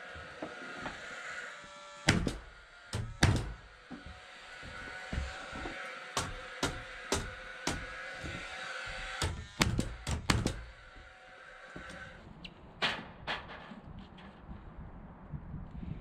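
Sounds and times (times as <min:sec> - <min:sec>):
building work knocks and thuds: 0:02.1 - 0:11.0, 0:12.8 - 0:14.4.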